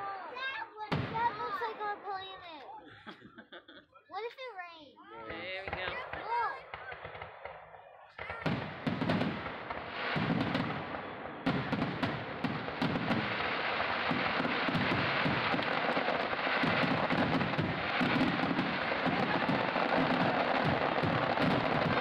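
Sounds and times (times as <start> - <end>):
firework shells bursting with booms: 0.8 - 2.4, 5.6 - 22.0
dense crackle of sharp pops: 5.3 - 22.0.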